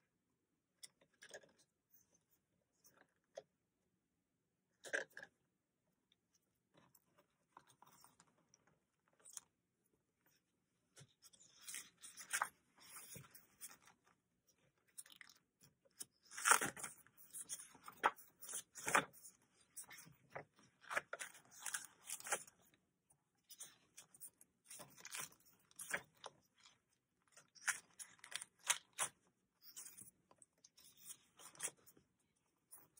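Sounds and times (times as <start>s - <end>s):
paper pages being flipped: 16.2s - 19.2s, 19.8s - 22.7s, 23.6s - 26.3s.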